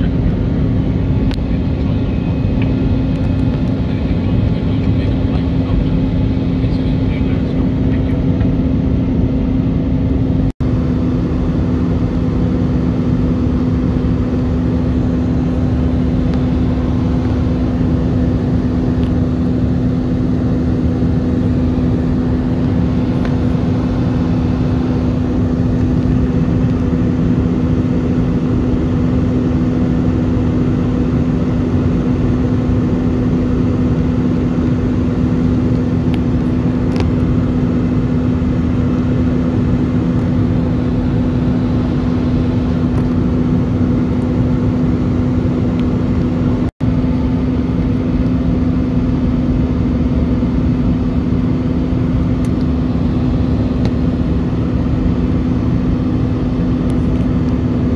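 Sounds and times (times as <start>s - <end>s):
constant low hum: 0.0s - 57.9s
jet engines droning in cabin: 0.0s - 57.9s.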